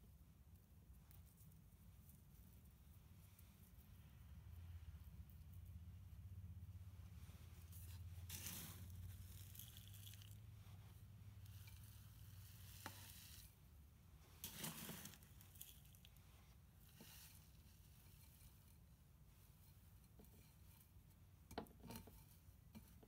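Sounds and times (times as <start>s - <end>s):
potting mix rustling and crunching: 7.0s - 21.0s.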